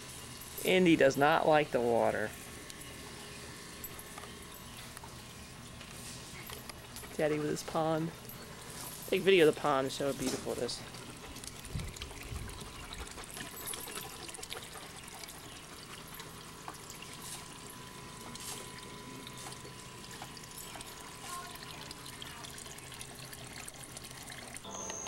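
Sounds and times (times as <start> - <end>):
fountain water trickling and splashing: 7.2 - 24.7.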